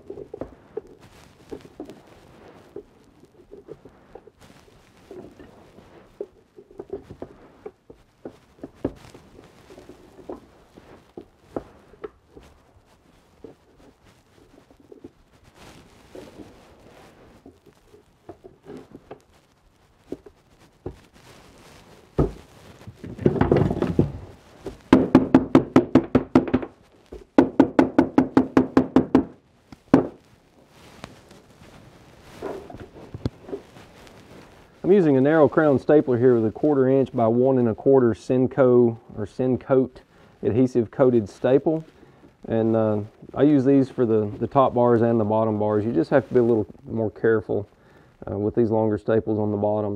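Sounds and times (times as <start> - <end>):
loud knock on wood: 24.9 - 26.7, 27.4 - 30.2
rapid tapping on wooden frames: 24.9 - 26.7, 27.4 - 30.2.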